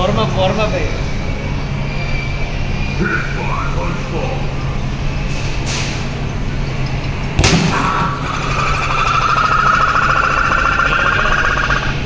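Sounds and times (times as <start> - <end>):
rising electronic ticking tone: 6.8 - 12.0.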